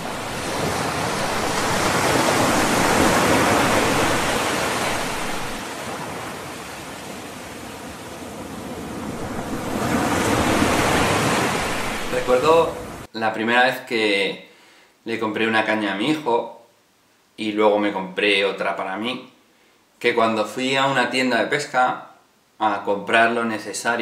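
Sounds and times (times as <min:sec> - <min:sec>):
sea waves washing in: 0:00.0 - 0:13.1.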